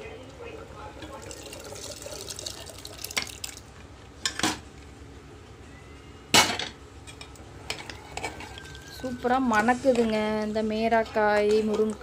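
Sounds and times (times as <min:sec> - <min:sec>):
metal ladle scraping pots: 0:07.7 - 0:10.3.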